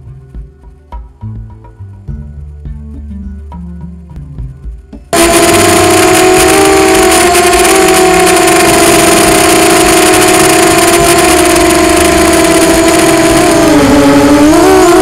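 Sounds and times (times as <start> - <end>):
quadcopter motors whining: 5.2 - 15.0.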